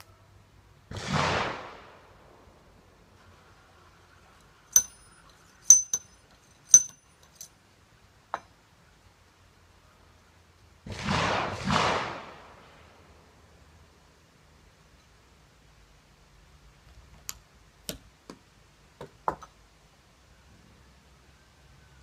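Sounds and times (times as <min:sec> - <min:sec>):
ramrod clinking on metal: 0:04.7 - 0:07.5
ramrod scraping in bore: 0:04.7 - 0:07.5.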